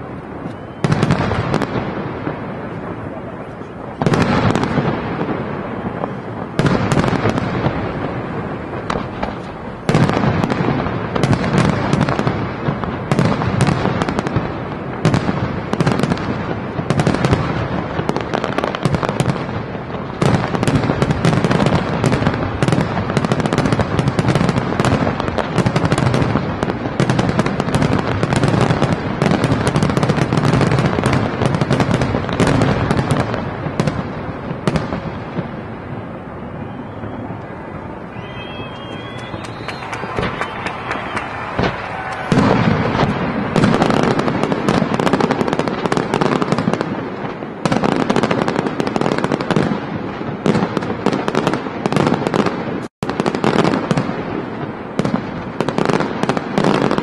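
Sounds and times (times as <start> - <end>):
firework shells bursting: 38.1 - 47.8.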